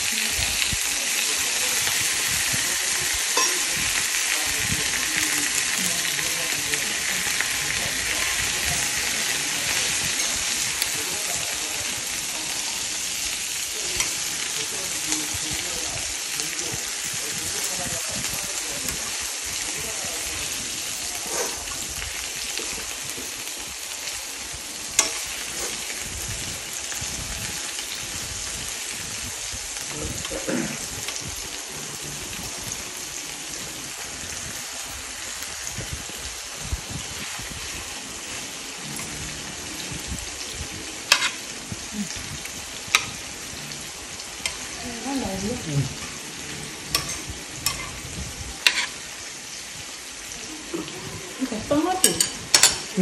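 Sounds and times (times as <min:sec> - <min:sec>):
meat sizzling in frying pan: 0:00.0 - 0:53.0
utensil clicking against pan: 0:25.0 - 0:26.7, 0:41.1 - 0:41.4, 0:52.0 - 0:52.9.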